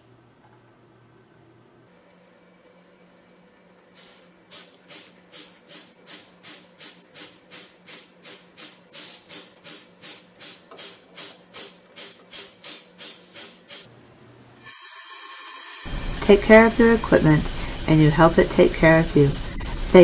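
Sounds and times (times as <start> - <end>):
hissing spurts of air and water: 15.8 - 20.0.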